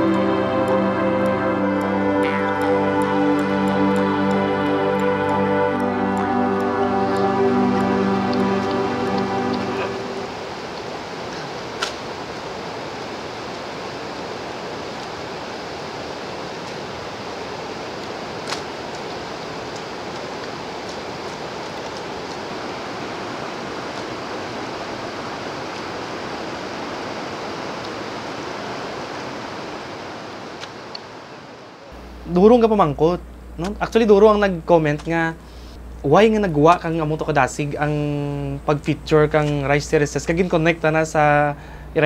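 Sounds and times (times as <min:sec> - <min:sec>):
running water rushing: 0:00.0 - 0:32.9.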